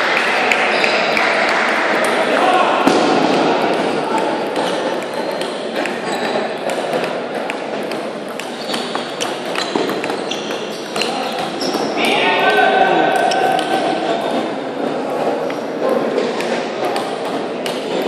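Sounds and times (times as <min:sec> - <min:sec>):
murmur of voices echoing: 0:00.0 - 0:18.0
table tennis ball clicking: 0:04.2 - 0:11.8.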